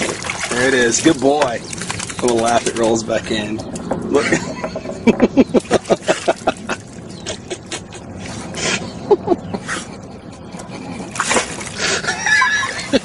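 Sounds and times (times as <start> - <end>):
dog splashing into water: 0.0 - 3.0, 11.2 - 11.8.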